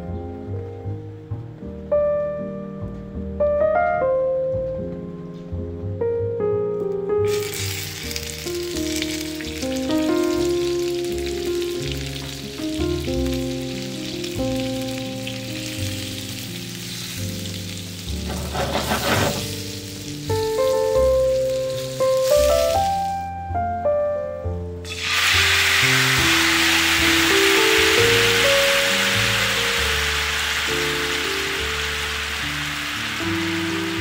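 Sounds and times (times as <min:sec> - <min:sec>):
butter sizzling in a frying pan: 0:07.3 - 0:23.3, 0:24.9 - 0:34.0.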